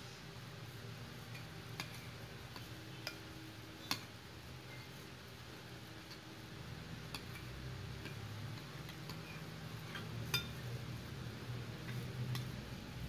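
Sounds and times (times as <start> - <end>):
metal spoon clinking against bowl: 1.3 - 4.1, 7.1 - 10.6.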